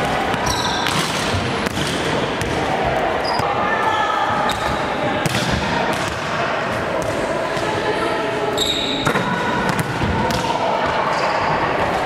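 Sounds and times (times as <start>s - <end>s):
volleyballs slapping and thudding: 0.0s - 2.7s, 4.5s - 7.7s, 9.0s - 10.6s.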